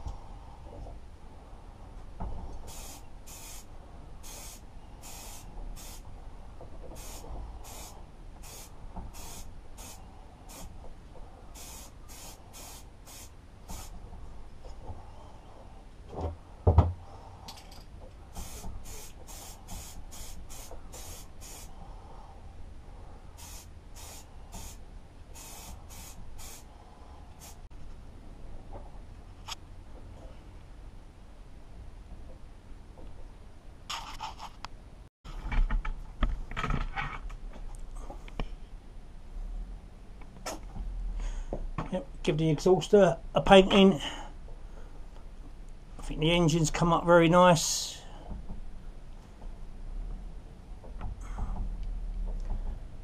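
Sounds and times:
aerosol spray can hissing: 0:02.7 - 0:06.0, 0:07.0 - 0:10.7, 0:11.6 - 0:14.0, 0:18.3 - 0:21.7, 0:23.4 - 0:24.8, 0:25.4 - 0:26.7, 0:27.4 - 0:27.6.

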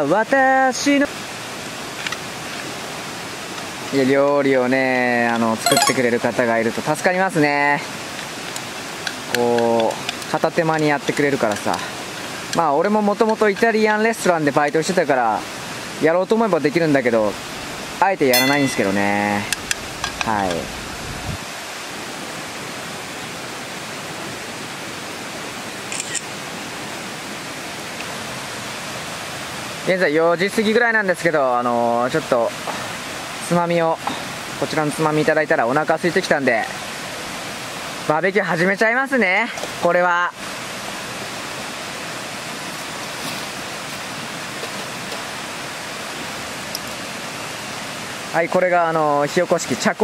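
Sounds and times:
river water rushing: 0:14.1 - 0:18.0, 0:21.4 - 0:31.3, 0:36.7 - 0:48.6.

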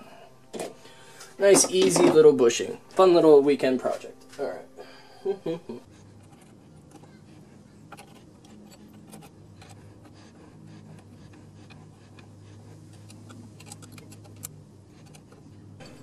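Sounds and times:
hex key clicking on bolt: 0:13.0 - 0:15.4.

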